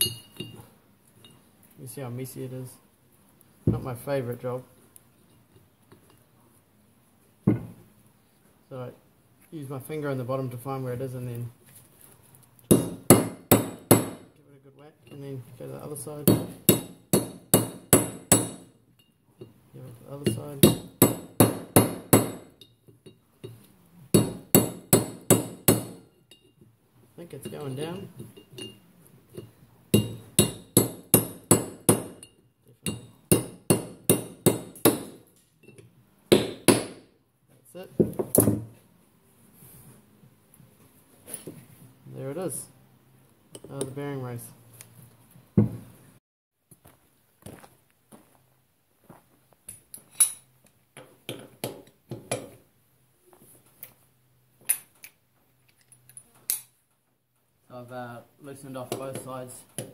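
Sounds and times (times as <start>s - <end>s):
socket wrench clinking on wheel nuts: 0.0s - 0.6s
hammer striking chisel: 12.7s - 14.3s, 16.2s - 18.8s, 20.3s - 22.7s, 24.1s - 26.4s, 29.9s - 37.1s.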